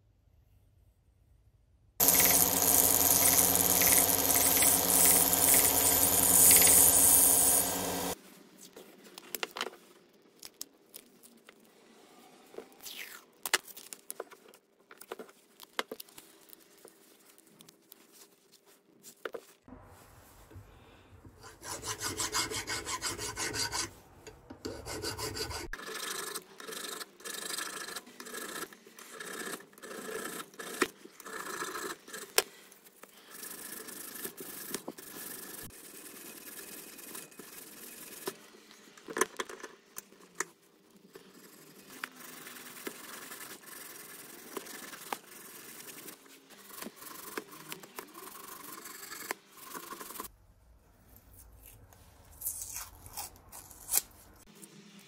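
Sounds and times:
file rasping on metal: 0:02.0 - 0:08.2, 0:21.4 - 0:23.9, 0:24.6 - 0:26.0
sandpaper scraping metal: 0:02.0 - 0:08.2, 0:21.4 - 0:24.0, 0:41.2 - 0:50.3.

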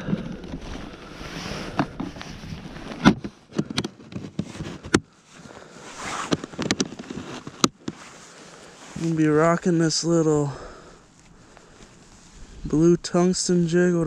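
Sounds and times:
soft rustling: 0:00.0 - 0:13.6.

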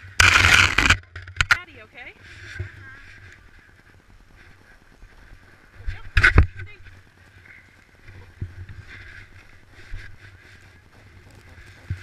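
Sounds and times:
wind rumble: 0:00.0 - 0:12.0
soft thumps on snow: 0:08.0 - 0:12.0.

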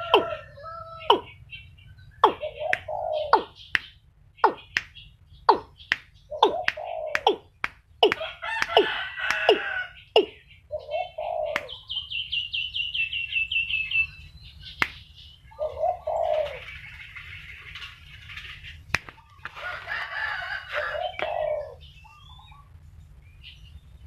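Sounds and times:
high falling bird notes: 0:00.0 - 0:01.5, 0:02.1 - 0:10.4
bird low-pitched calls: 0:00.0 - 0:12.3, 0:13.7 - 0:22.7.

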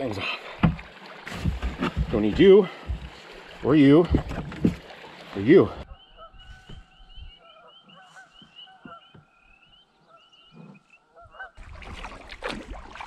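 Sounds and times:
soft knocks: 0:00.6 - 0:03.2
waterfowl honking: 0:05.9 - 0:11.6.

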